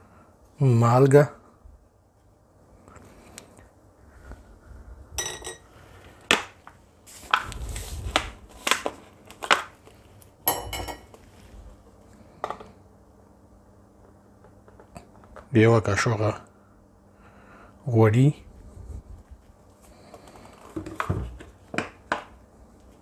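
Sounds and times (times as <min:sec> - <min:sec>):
metal spoon clinking on ceramic dishes: 0:05.2 - 0:05.6.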